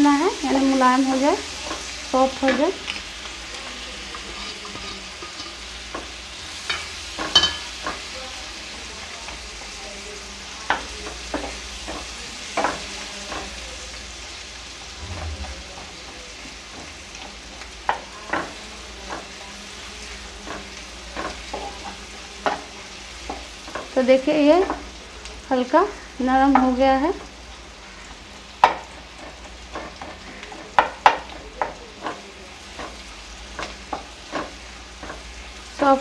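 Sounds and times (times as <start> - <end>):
onions sizzling in a pan: 0.0 - 36.0
spatula scraping and knocking pan: 4.0 - 8.0.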